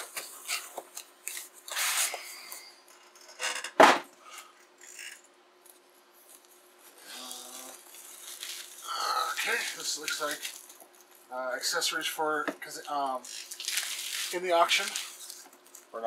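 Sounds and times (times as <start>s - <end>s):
packing peanuts rustling: 6.3s - 11.2s, 12.6s - 16.0s.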